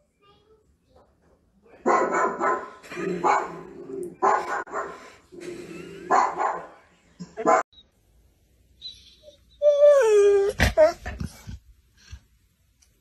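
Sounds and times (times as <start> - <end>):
recorded dog barking through speaker: 1.8 - 5.1, 6.1 - 6.8, 7.4 - 7.6.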